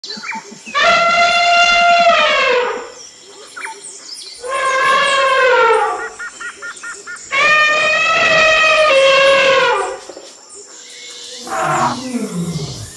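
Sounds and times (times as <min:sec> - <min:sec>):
elephant trumpeting: 0:00.7 - 0:03.0, 0:04.4 - 0:06.2, 0:07.3 - 0:10.0, 0:11.4 - 0:12.9
small birds chirping: 0:02.9 - 0:12.9.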